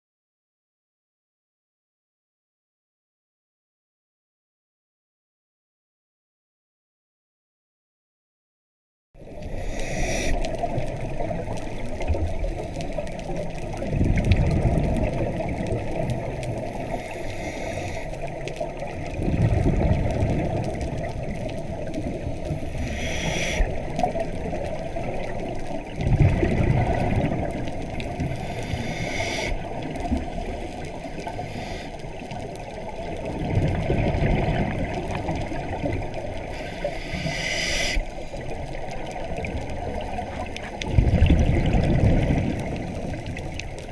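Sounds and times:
muffled underwater wash: 9.2 - 43.9
regulator exhale bubbles: 9.2 - 43.9
inhaling hiss: 9.5 - 10.6, 16.9 - 18.2, 22.7 - 23.7, 28.3 - 29.6, 31.3 - 32.2, 36.5 - 38.1.

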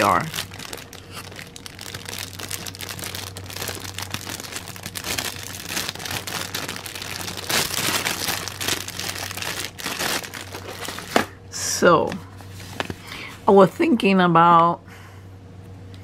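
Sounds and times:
plastic packaging crinkling: 0.0 - 11.4.

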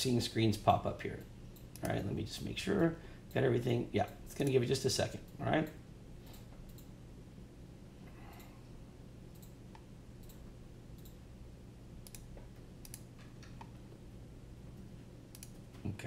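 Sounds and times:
low steady hum: 0.0 - 16.0
computer mouse clicks: 1.6 - 2.1, 5.3 - 6.9, 9.3 - 11.2, 12.0 - 13.8, 15.3 - 15.6.

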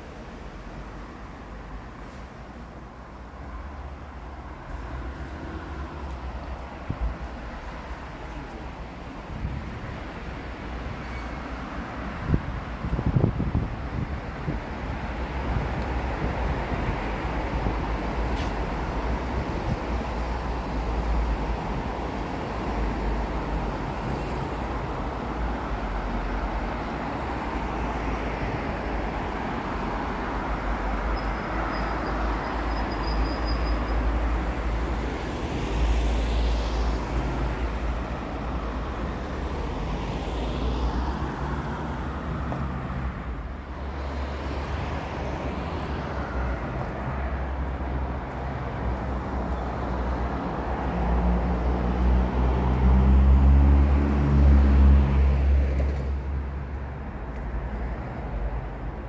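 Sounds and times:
vehicles passing: 0.0 - 59.0.

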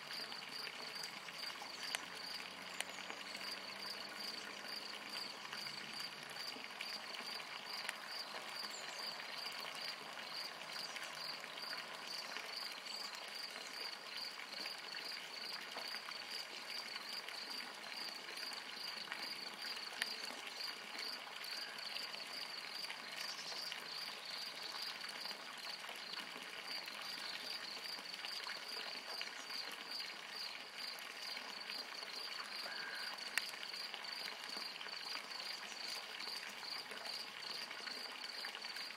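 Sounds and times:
outdoor background noise: 0.0 - 38.9
insect chirping: 31.5 - 34.2.

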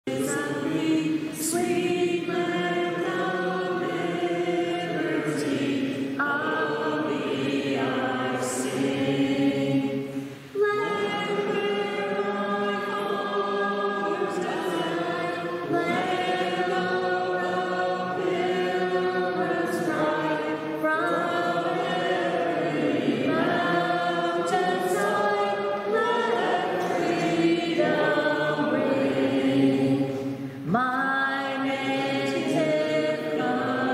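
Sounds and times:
choir singing unaccompanied: 0.0 - 33.9.

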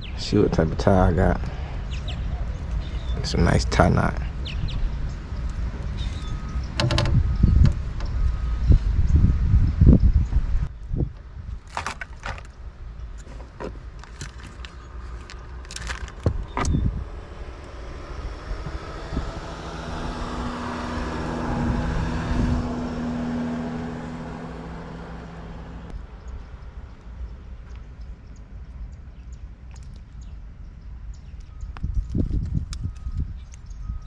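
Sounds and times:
fishing tackle clicks and rustles: 11.6 - 16.6
vehicle driving past: 16.8 - 26.0.

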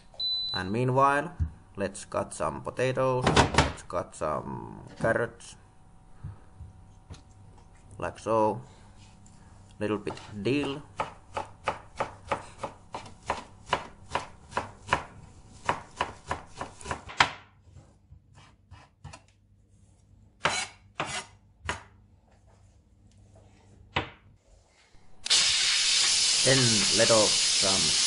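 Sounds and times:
knife chopping on cutting board: 10.0 - 17.4.

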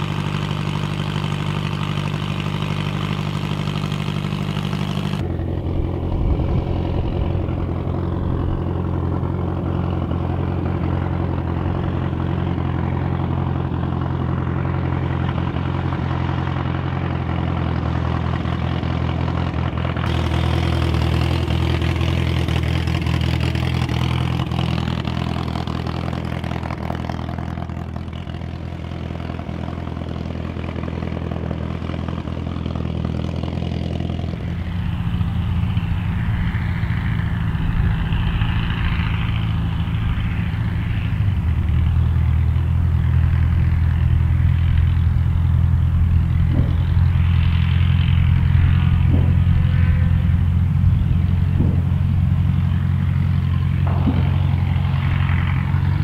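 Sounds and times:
light aircraft engine droning: 0.0 - 56.0.

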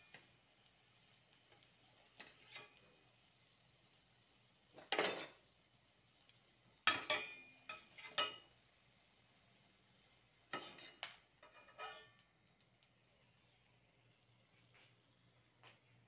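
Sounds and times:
metal spatula scraping frying pan: 2.2 - 2.8, 6.9 - 8.5, 10.5 - 12.2.

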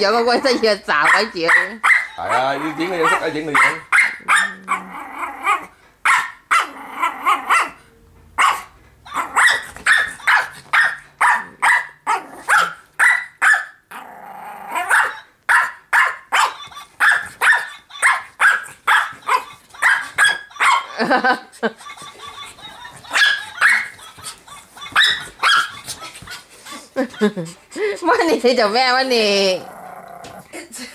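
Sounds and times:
small dog barking: 1.0 - 4.8, 5.6 - 7.8, 8.4 - 13.8, 14.8 - 21.0, 23.0 - 24.0, 24.8 - 25.8.

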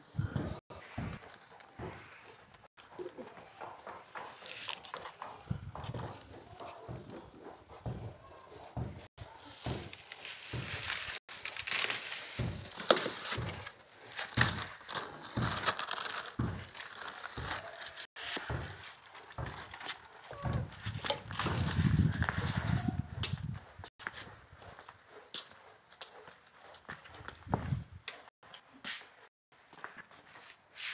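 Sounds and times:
plastic sheeting crinkling: 9.2 - 22.7.

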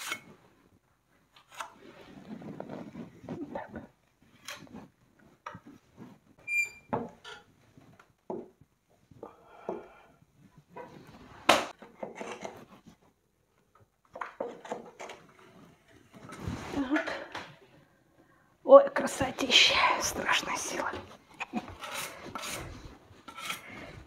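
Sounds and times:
trowel scraping plaster: 21.4 - 24.0.

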